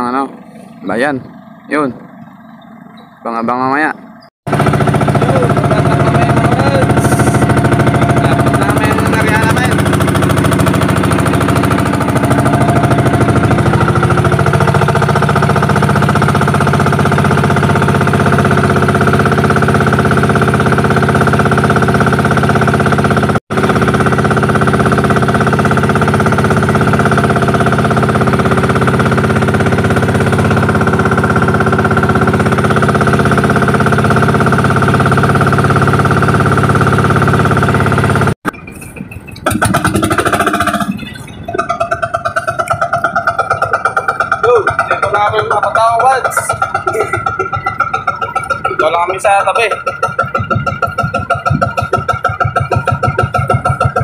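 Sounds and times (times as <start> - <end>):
small boat engine droning: 0.0 - 54.0.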